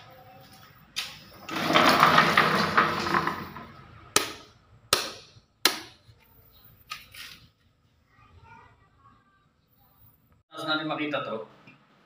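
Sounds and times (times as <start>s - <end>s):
loud scraping rustle: 1.4s - 3.7s.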